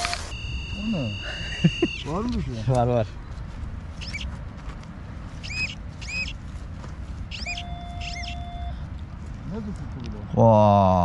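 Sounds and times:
steady even tone: 0.3 - 2.4, 7.3 - 8.8
small bird chirping: 3.2 - 4.3, 5.4 - 6.4, 7.3 - 8.8.

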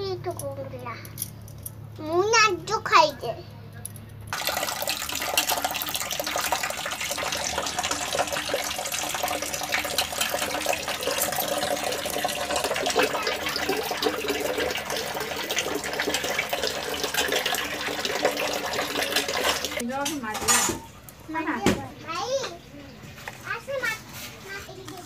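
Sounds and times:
water sloshing in a pot: 4.3 - 19.8.

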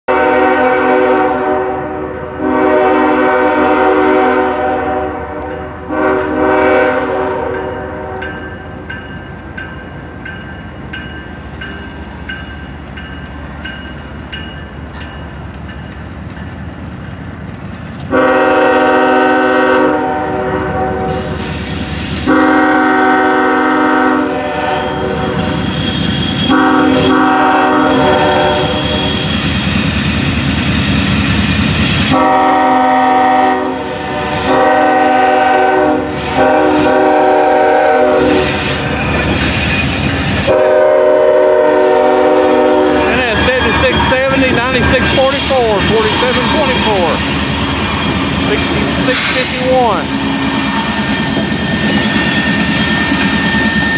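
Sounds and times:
locomotive horn blasts: 0.1 - 8.4, 18.1 - 21.3, 22.2 - 25.6, 26.3 - 29.2, 32.1 - 38.6, 40.4 - 47.2
diesel locomotive rumble: 8.7 - 53.9.

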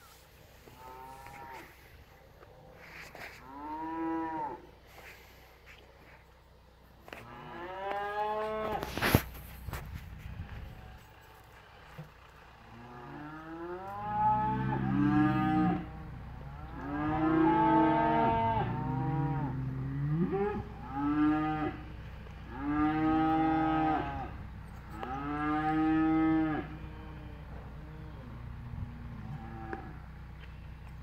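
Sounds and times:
cattle mooing: 0.6 - 1.9, 3.3 - 4.7, 7.1 - 9.1, 12.6 - 30.1.

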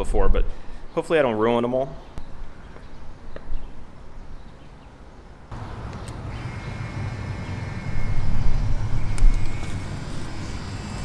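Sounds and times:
vehicle passing: 5.5 - 11.0.

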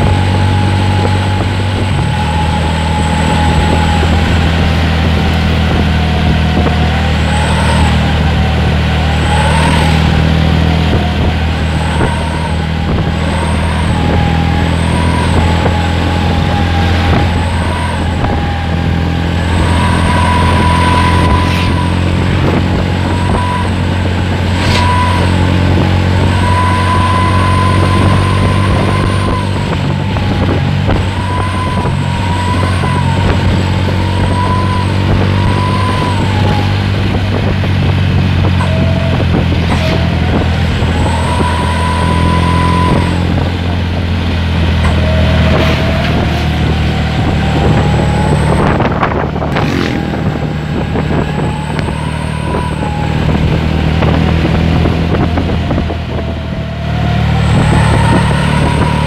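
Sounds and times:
low engine drone: 0.0 - 59.0
whistling exhaust howling: 0.0 - 59.0.

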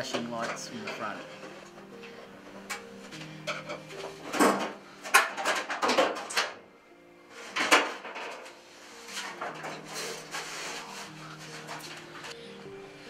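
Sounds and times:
background music: 0.0 - 13.0
plastic cover rubbing: 7.3 - 12.4.

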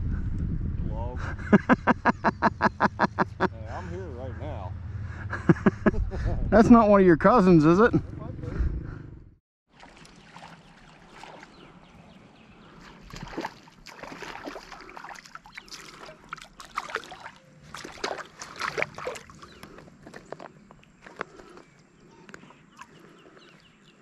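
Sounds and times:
fish splashing in water: 9.7 - 11.9, 12.8 - 20.3
water sloshes and knocks: 9.7 - 11.9, 12.8 - 20.5.

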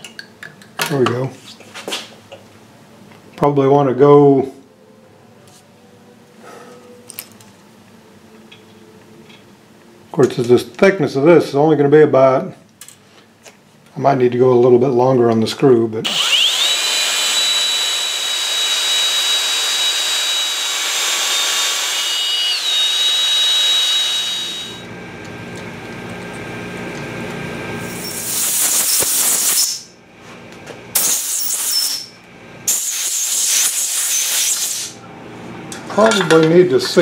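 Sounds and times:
cordless drill whining: 16.1 - 24.9.

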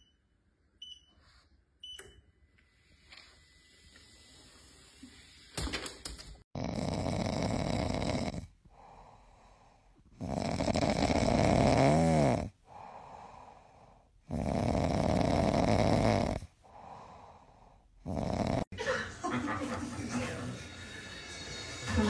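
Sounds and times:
dog snoring: 6.6 - 18.7.

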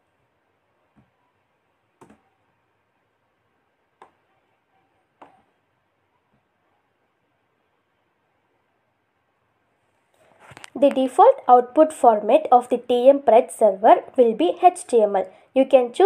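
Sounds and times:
computer mouse clicks: 2.0 - 2.3.

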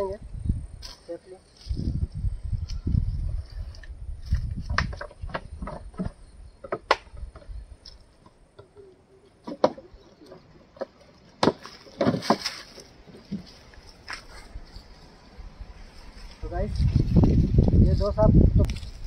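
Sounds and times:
sharp knocks and cracks: 4.6 - 8.8, 9.4 - 13.5.

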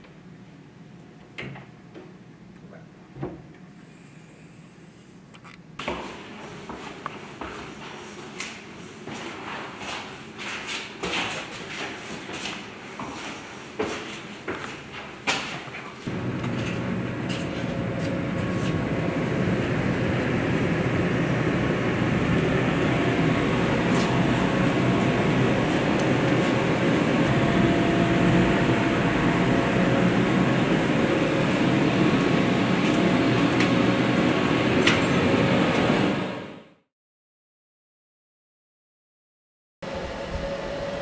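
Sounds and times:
hvac machinery rumbling drone: 16.0 - 36.7, 39.9 - 41.0.

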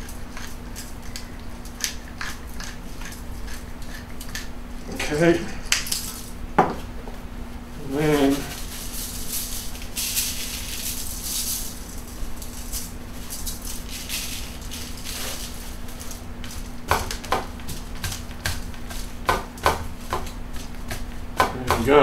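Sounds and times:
salt grains hissing from a box: 8.0 - 16.7
taps and rustles on foil: 8.2 - 22.0.

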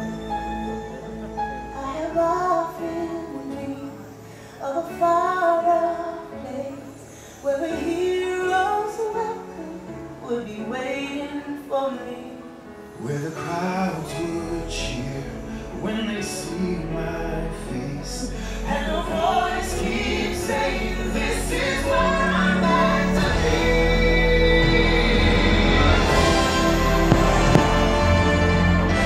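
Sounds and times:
woman singing with accompaniment: 1.7 - 12.5.

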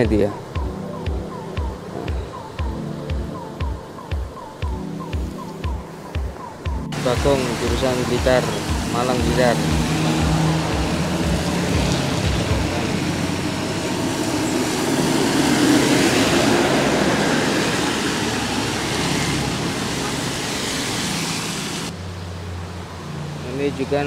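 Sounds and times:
tyres on wet asphalt: 6.9 - 24.0
vehicle engines: 6.9 - 24.0
bus passing: 7.0 - 24.0.

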